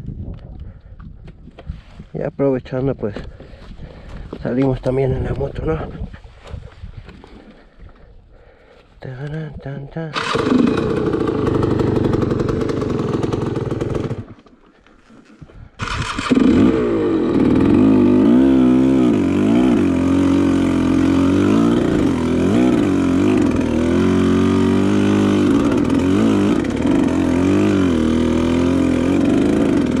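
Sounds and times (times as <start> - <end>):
dirt bike engine revving: 10.1 - 14.4, 15.8 - 30.0.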